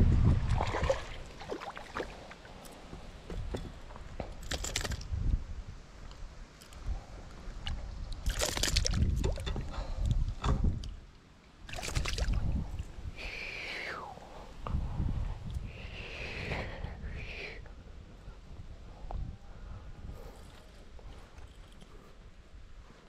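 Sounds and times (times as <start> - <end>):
fish splashing in water: 8.2 - 9.1, 11.7 - 12.4.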